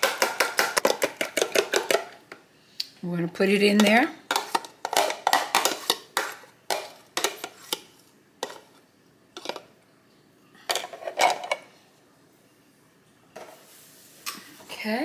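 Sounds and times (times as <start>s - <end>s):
fork tapping plastic container: 0.0s - 2.1s.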